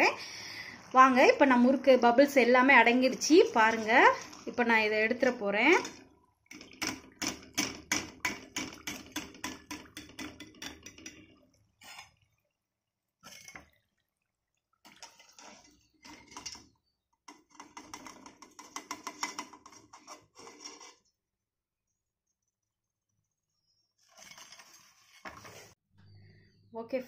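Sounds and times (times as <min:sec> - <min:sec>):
hot oil crackling: 0:00.0 - 0:12.2, 0:14.8 - 0:16.7
steel spoon scraping metal pot: 0:03.1 - 0:12.2, 0:14.9 - 0:21.1, 0:24.0 - 0:25.8.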